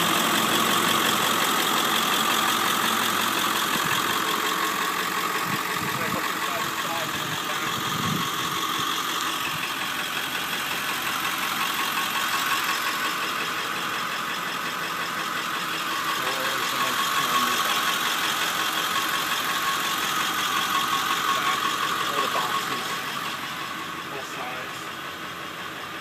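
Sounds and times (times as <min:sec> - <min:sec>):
constant whine: 0:00.0 - 0:26.0
van engine idling: 0:00.0 - 0:26.0.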